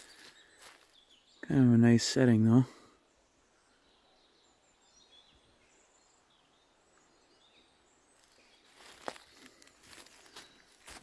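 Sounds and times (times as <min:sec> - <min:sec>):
faint high bird chirps: 0:03.1 - 0:11.0.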